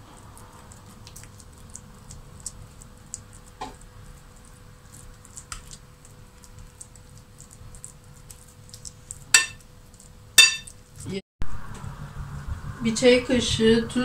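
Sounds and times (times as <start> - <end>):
spoon clinking on bowl: 9.4 - 9.6, 10.4 - 10.8.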